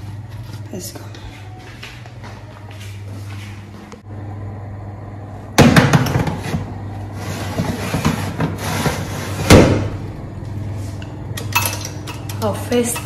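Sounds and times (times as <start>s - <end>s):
steady low hum: 0.0s - 13.0s
metal baking tray scraping: 6.2s - 9.5s.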